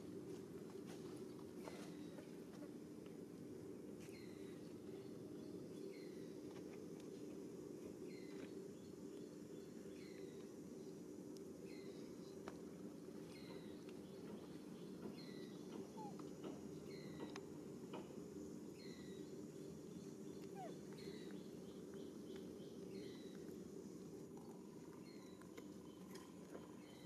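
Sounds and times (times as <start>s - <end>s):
steady low hum: 0.0s - 27.0s
bird chirping: 13.3s - 17.4s, 18.8s - 23.4s.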